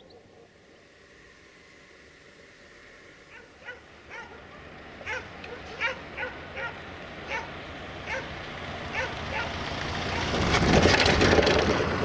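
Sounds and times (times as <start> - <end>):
vehicle passing by: 0.0 - 12.0
dog barking: 3.3 - 8.3, 8.9 - 10.4.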